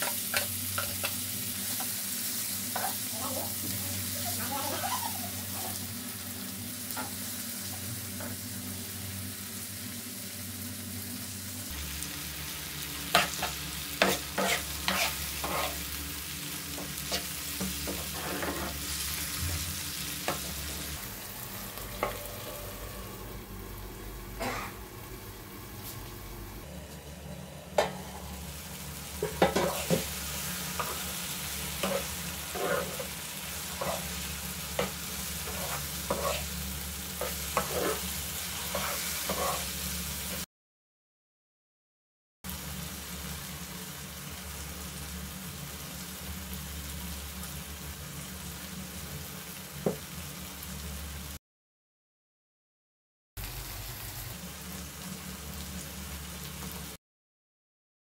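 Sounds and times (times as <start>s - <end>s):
vegetables sizzling in a frying pan: 0.0s - 40.5s, 42.5s - 51.4s, 53.4s - 57.0s
metal spoon scraping a pan: 13.1s - 16.0s, 16.7s - 19.1s, 29.2s - 36.6s, 37.2s - 39.9s.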